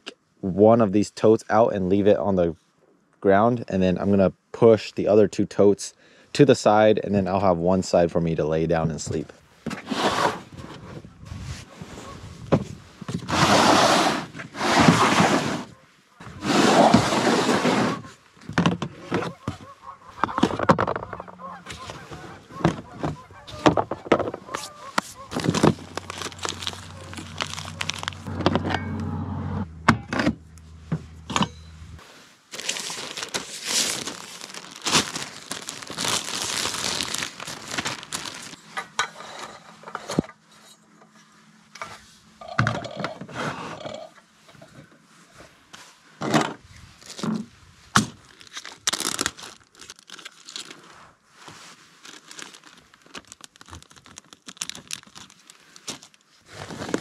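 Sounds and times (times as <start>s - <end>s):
knocks and scrapes on plastic totes: 11.9s - 26.7s
plastic packaging crinkling: 24.5s - 28.4s, 32.5s - 38.8s, 48.2s - 51.0s, 51.8s - 57.0s.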